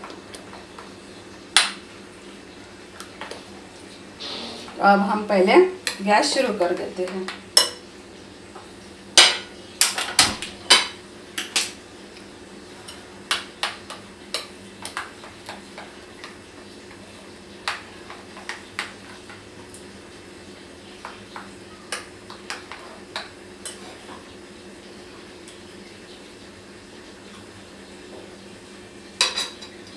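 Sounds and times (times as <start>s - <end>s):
dishes clinking on stovetop: 7.6s - 7.9s, 9.2s - 11.8s, 29.2s - 29.9s.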